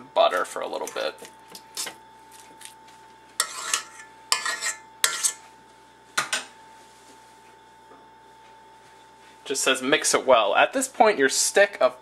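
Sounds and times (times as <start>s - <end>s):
fork striking metal bowl: 3.4s - 5.4s.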